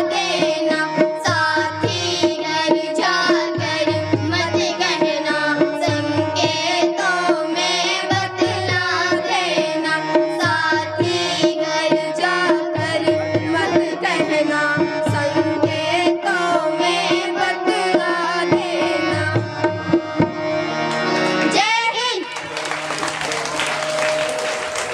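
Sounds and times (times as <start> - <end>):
girls singing together: 0.0 - 19.5
harmonium: 0.0 - 24.9.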